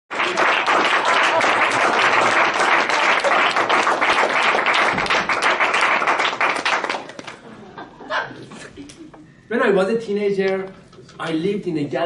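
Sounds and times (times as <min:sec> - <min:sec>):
audience applauding: 0:00.1 - 0:07.4.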